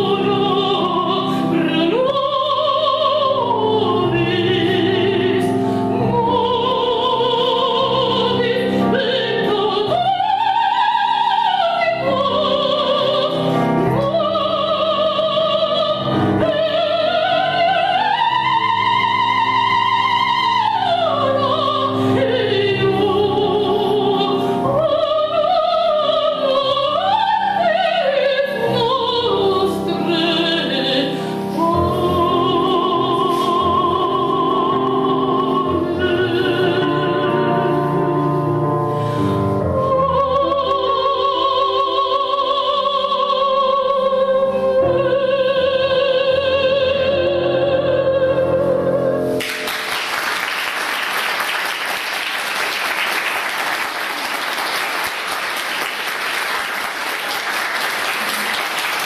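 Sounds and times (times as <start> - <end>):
woman singing operatically: 0.0 - 38.5, 39.6 - 49.1
audience applauding: 49.4 - 59.0.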